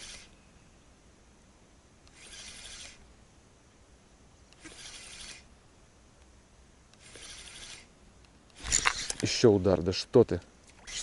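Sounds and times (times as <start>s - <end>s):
fishing reel scratchy whir: 0.0s - 0.3s, 2.1s - 3.0s, 4.6s - 5.5s, 7.0s - 7.9s, 8.6s - 9.4s, 10.7s - 11.0s.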